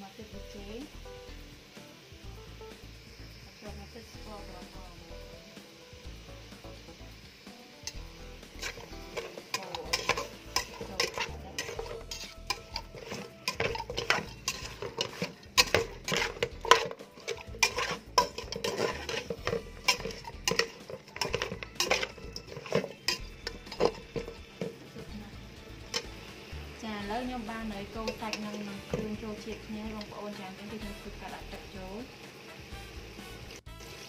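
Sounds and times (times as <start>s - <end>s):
utensil scraping a metal pot: 7.8s - 31.3s.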